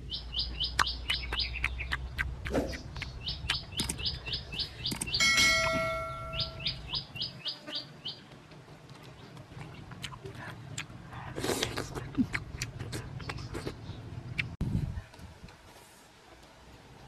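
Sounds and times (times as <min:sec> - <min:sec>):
bird chirping: 0:00.0 - 0:08.3
sharp clicks: 0:03.0 - 0:04.2, 0:04.9 - 0:05.2
bell-like ding: 0:05.2 - 0:06.8.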